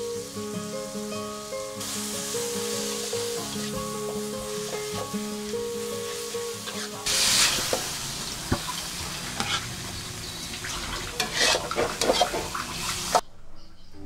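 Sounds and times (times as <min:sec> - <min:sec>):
vegetables sizzling in a wok: 0:00.0 - 0:13.2
metal spatula scraping wok: 0:06.0 - 0:07.8, 0:09.2 - 0:09.8, 0:10.7 - 0:13.2.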